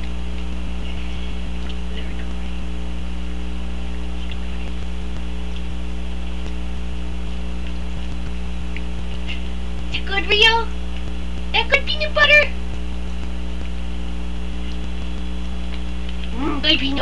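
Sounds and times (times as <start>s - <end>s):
electrical mains hum: 0.0s - 17.0s.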